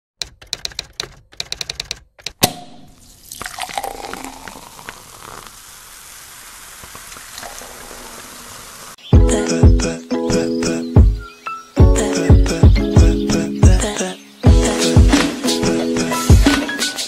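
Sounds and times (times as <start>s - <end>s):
typewriter key clicks: 0.2s - 2.6s
steady hiss: 3.1s - 9.1s.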